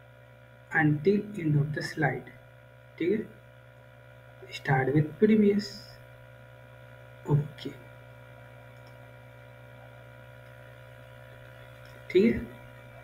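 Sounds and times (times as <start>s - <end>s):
electrical mains hum: 0.0s - 13.0s
faint high-pitched buzz: 0.0s - 13.0s.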